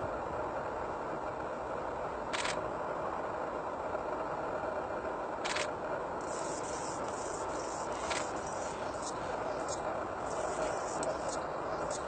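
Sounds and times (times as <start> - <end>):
steady background hiss: 0.0 - 12.0
hummingbird chip notes: 6.2 - 12.0.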